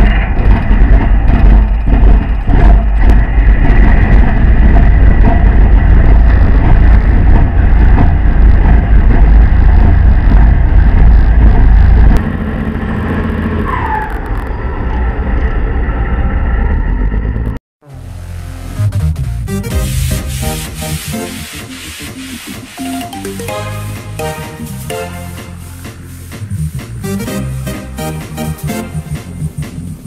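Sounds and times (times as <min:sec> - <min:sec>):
rising and falling squeal: 0:12.8 - 0:17.4
boat diesel engine rumbling: 0:17.8 - 0:30.0
electronic music: 0:17.8 - 0:30.0.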